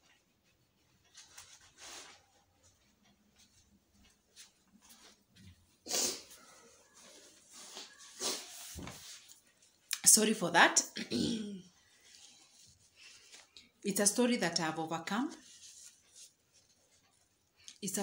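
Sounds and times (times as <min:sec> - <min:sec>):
clothing and phone rustling: 0:00.0 - 0:09.9, 0:11.7 - 0:13.9, 0:15.1 - 0:17.7
woman sniffing and breathing: 0:05.9 - 0:06.3.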